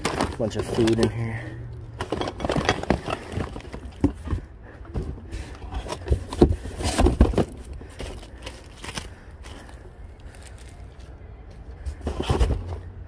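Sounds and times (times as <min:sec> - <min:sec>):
packets rustling and crinkling: 0:00.0 - 0:04.5, 0:05.4 - 0:11.1.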